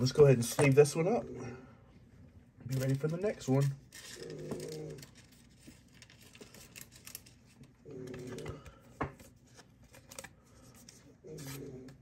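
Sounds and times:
trading cards rustling: 0:02.7 - 0:12.0.

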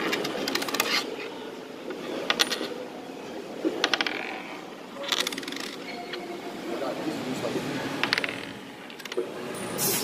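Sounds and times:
coin spinning on wooden table: 0:03.8 - 0:04.4.

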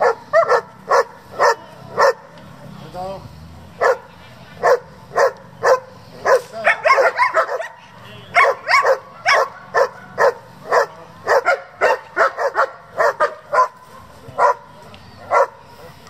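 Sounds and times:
dog barking: 0:00.0 - 0:02.3, 0:03.8 - 0:14.7, 0:15.3 - 0:15.6.

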